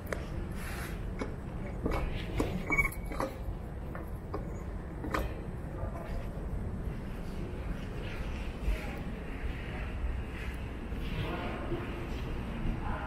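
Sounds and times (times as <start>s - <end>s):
high squeak: 2.5s - 3.4s.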